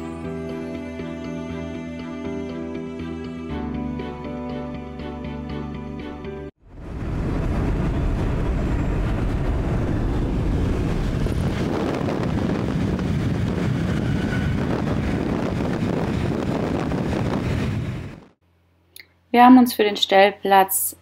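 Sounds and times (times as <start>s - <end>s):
wind buffeting microphone: 6.6s - 18.4s
wind rush and road noise: 6.6s - 18.4s.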